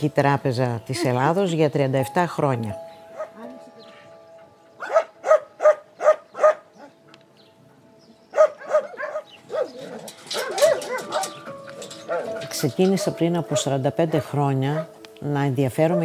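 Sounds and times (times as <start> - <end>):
dogs barking: 3.1 - 3.4, 4.8 - 7.0, 8.3 - 15.0, 15.8 - 16.0.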